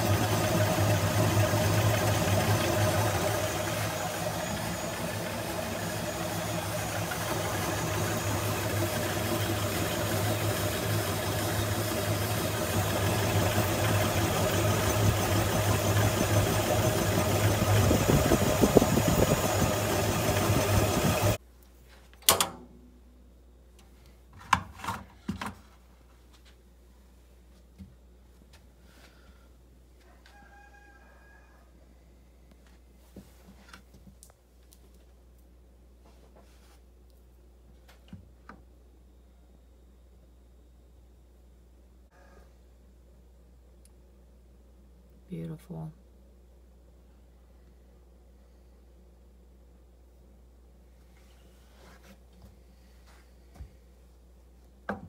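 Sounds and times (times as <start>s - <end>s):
electric drill motor drone: 0.0s - 21.4s.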